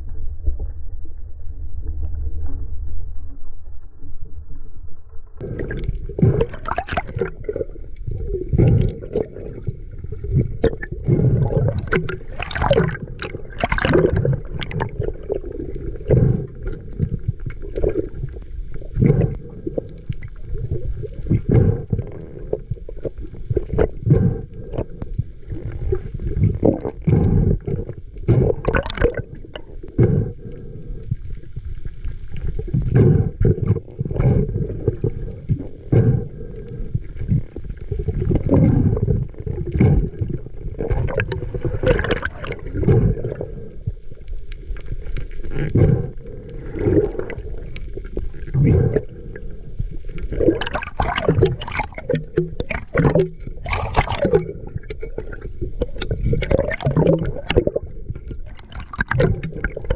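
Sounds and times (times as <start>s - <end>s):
underwater gurgling and sloshing: 0.0s - 59.9s.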